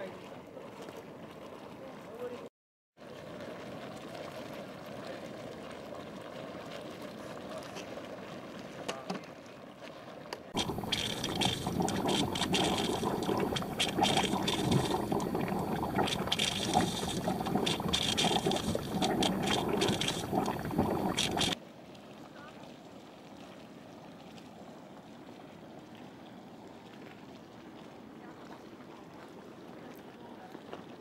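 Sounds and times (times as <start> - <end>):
hot spring pools bubbling: 0.0 - 31.0.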